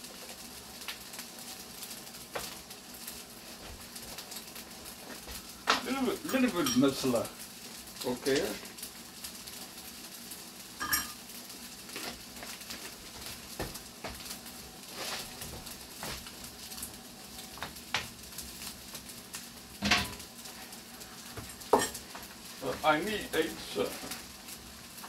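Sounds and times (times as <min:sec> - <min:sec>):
beans sizzling in a pan: 0:00.0 - 0:25.0.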